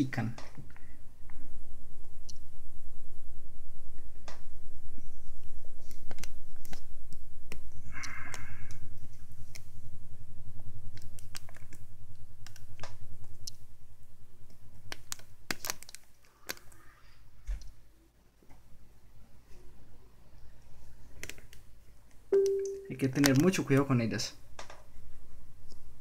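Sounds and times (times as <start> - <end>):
steady low hum: 0.0 - 14.8.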